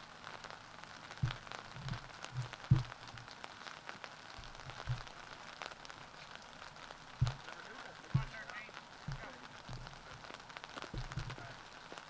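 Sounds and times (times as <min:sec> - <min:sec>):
light rain pattering: 0:00.0 - 0:12.0
dull thumps: 0:01.2 - 0:03.4, 0:04.3 - 0:05.6, 0:07.1 - 0:08.4, 0:09.0 - 0:12.0.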